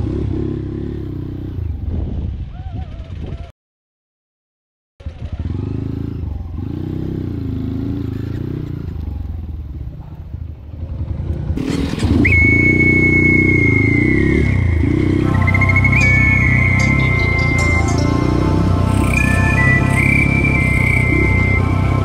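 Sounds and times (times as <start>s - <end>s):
dirt bike engine revving: 5.0s - 9.1s, 10.9s - 22.0s
song with high melody: 14.6s - 22.0s.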